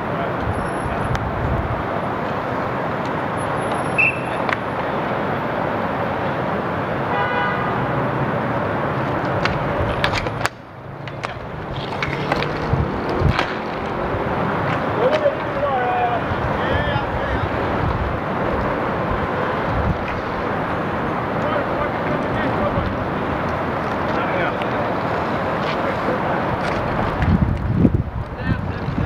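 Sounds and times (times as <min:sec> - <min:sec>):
city traffic: 0:00.0 - 0:29.0
car horn toot: 0:03.7 - 0:04.4, 0:07.1 - 0:07.8
hockey sticks clacking on puck: 0:09.2 - 0:13.9, 0:14.6 - 0:15.6.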